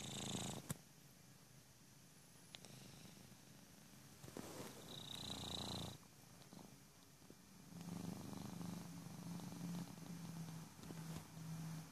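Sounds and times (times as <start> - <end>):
cat snoring: 0.0 - 0.7, 2.6 - 3.3, 4.3 - 6.8, 7.7 - 11.9.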